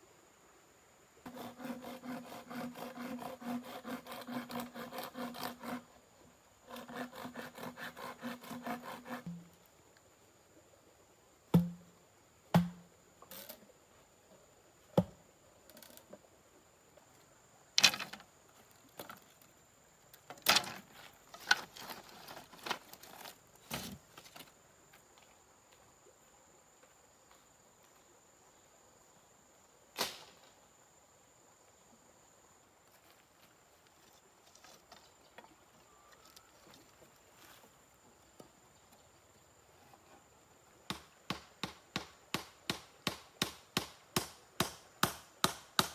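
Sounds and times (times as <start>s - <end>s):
high insect buzz: 1.2s - 35.2s.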